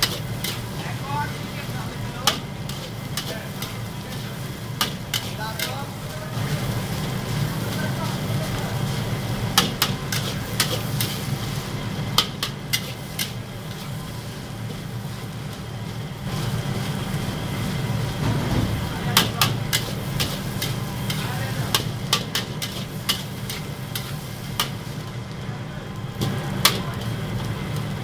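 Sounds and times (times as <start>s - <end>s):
gas burner roar: 0.0s - 28.0s
sizzling: 0.0s - 28.0s
spatula clanking against wok: 19.1s - 24.8s.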